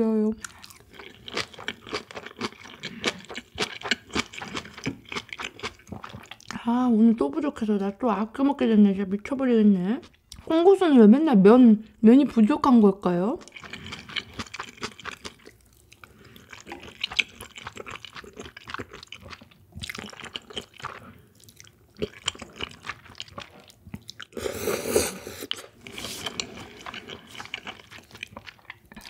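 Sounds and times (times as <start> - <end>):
wet chewing and mouth sounds: 0.4 - 6.6, 13.4 - 29.0
slurping noodles: 24.3 - 28.1.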